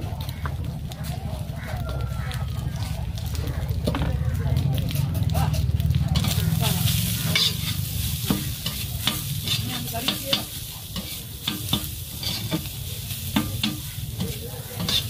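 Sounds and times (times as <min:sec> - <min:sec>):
meat sizzling on griddle: 0:05.4 - 0:15.0
metal spatulas clacking on griddle: 0:05.5 - 0:15.0.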